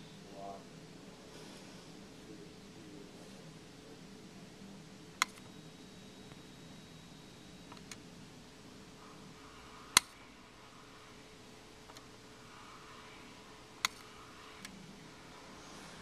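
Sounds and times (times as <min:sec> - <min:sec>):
faint steady hum: 0:00.0 - 0:16.0
sharp metallic clicks of electromagnet: 0:09.9 - 0:10.2, 0:13.8 - 0:14.8.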